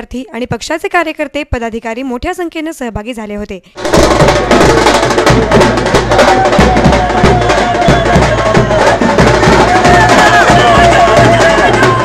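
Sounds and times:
drums beating quickly: 0:03.8 - 0:12.0.

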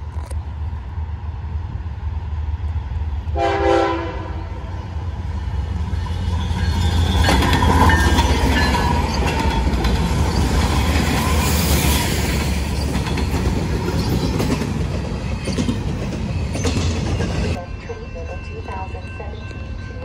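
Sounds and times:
diesel locomotives rumbling: 0:00.0 - 0:20.0
steel wheels rolling on rails: 0:05.5 - 0:20.0.

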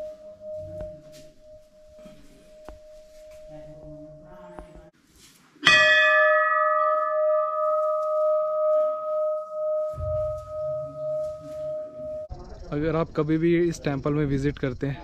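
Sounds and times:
temple bell ringing: 0:00.0 - 0:04.6, 0:05.6 - 0:12.3.

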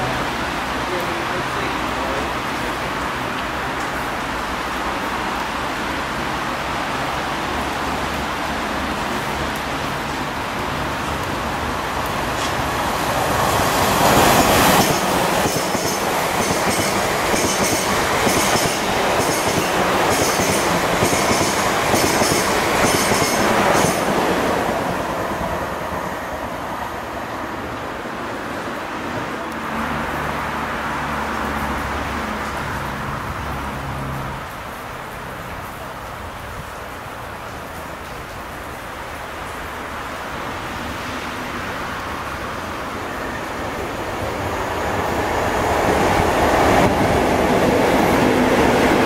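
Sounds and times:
diesel locomotive passing: 0:00.0 - 0:34.9, 0:39.8 - 0:49.0
wheels clacking over rail joints: 0:12.1 - 0:25.0.

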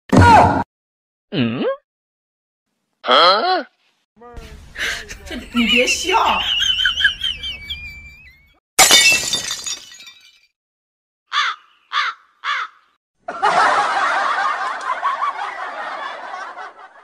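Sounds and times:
crowd laughter: 0:04.8 - 0:08.5, 0:13.2 - 0:17.0
shattering crash: 0:08.8 - 0:10.4
crow-like caws: 0:11.3 - 0:13.0.

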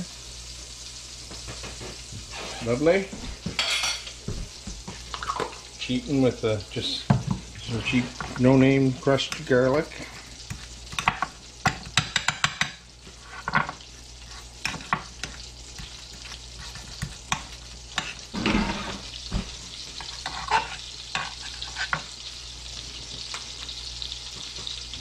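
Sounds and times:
frying pan sizzling: 0:00.0 - 0:25.0
knife scraping in ceramic cup: 0:20.0 - 0:22.0.

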